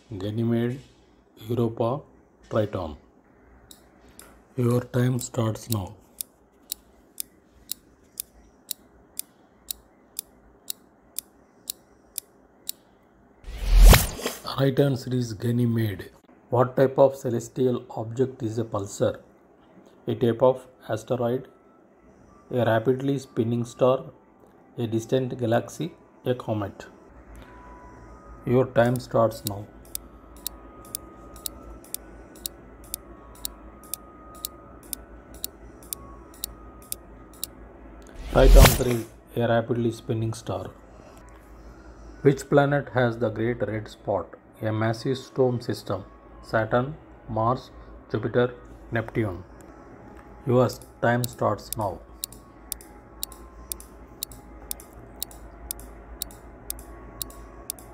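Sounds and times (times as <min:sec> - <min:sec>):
faint steady tones: 0:20.7 - 0:42.9, 0:44.4 - 0:57.9
timer ticking: 0:28.9 - 0:37.5, 0:50.8 - 0:57.9.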